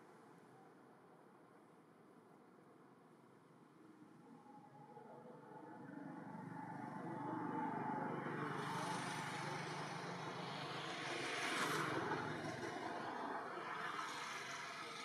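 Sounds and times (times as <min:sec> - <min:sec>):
vehicle passing by: 0:06.4 - 0:15.0.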